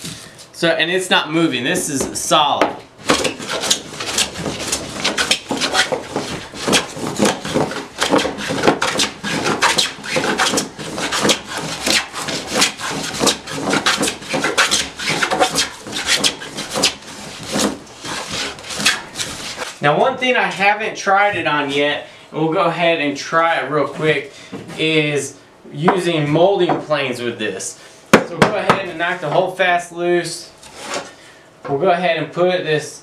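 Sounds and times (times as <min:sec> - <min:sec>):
hand plane shaving wood: 0:03.0 - 0:19.7.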